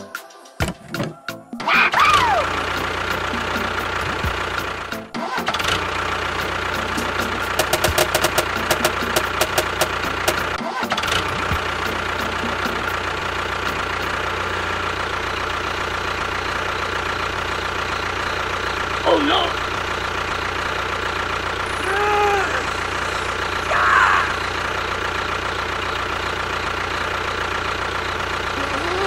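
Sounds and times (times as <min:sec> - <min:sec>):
quick rattling clicks: 0:07.4 - 0:11.2.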